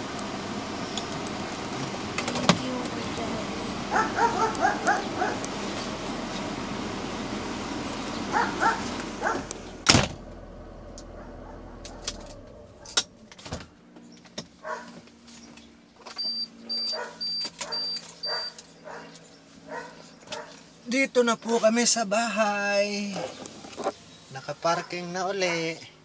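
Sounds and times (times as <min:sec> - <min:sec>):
car running noise: 0:00.0 - 0:21.9, 0:22.5 - 0:25.6
dog barking: 0:03.9 - 0:05.4, 0:08.3 - 0:09.5, 0:11.1 - 0:12.1, 0:14.6 - 0:15.0, 0:16.9 - 0:20.6, 0:24.4 - 0:25.8.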